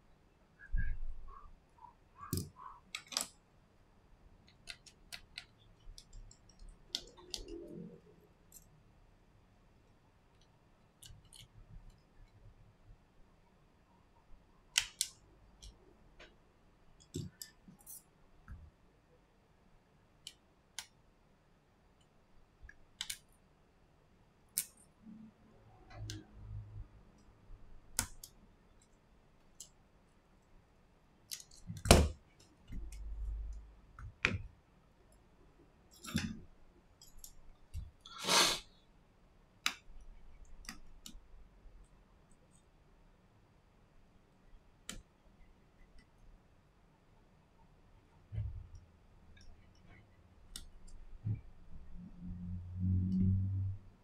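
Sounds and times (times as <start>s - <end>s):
small tools clicking on phone: 4.4s - 8.7s, 10.4s - 12.3s, 14.7s - 15.8s, 22.6s - 23.3s, 27.9s - 28.9s.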